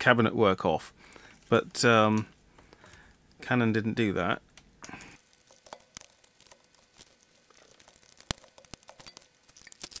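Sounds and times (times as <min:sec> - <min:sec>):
plastic clicks and rustles: 0:04.5 - 0:10.0.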